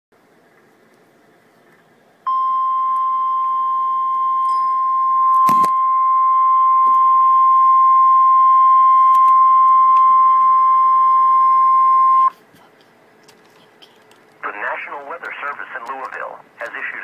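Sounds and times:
alert tone through laptop speakers: 0:02.3 - 0:12.3.

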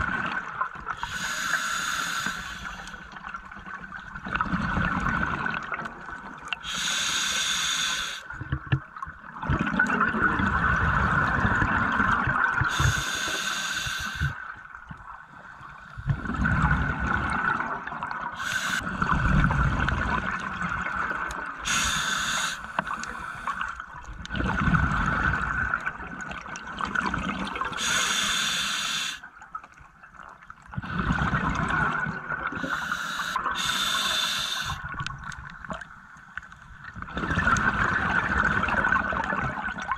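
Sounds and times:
regulator inhalation hiss: 0:01.0 - 0:03.0, 0:06.6 - 0:08.3, 0:12.7 - 0:14.4, 0:18.4 - 0:18.9, 0:21.6 - 0:23.6, 0:27.8 - 0:29.2, 0:32.6 - 0:34.8.

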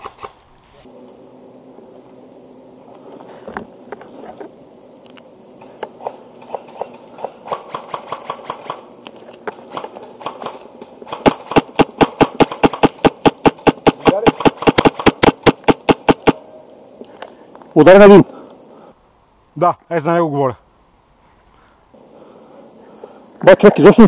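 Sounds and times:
airsoft rifle rapid fire: 0:06.0 - 0:08.9, 0:09.7 - 0:16.4.

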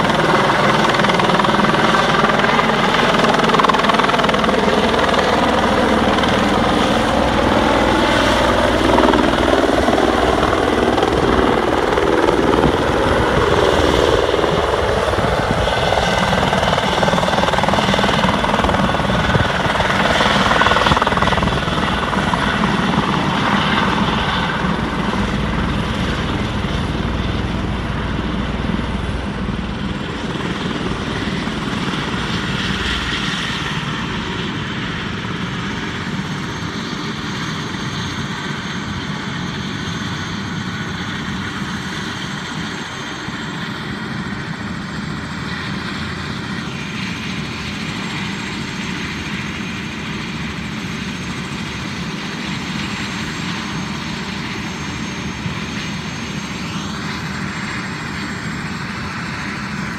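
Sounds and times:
helicopter rotor and turbine: 0:00.0 - 0:59.9
steady high whine: 0:00.0 - 0:59.9.

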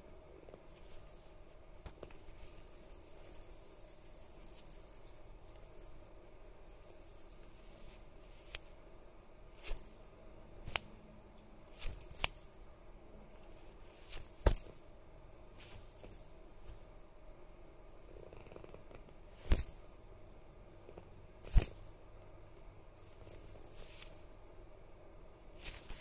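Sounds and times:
cat collar bell tinkling: 0:02.1 - 0:08.0, 0:21.1 - 0:24.3.

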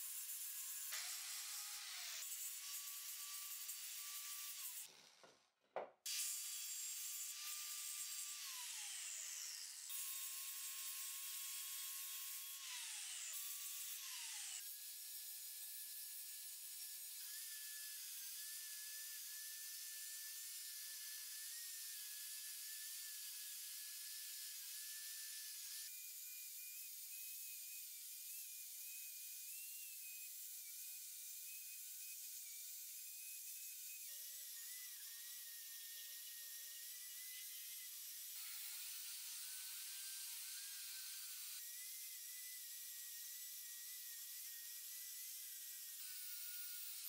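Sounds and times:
angle grinder grinding steel: 0:00.0 - 0:05.3, 0:06.1 - 0:14.7.

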